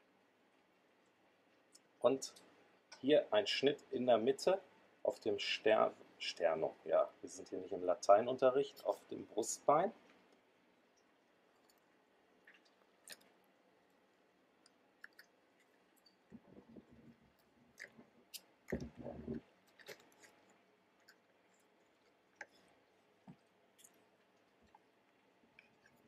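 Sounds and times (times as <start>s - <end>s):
chicken crunching and tearing: 19.6s - 22.9s.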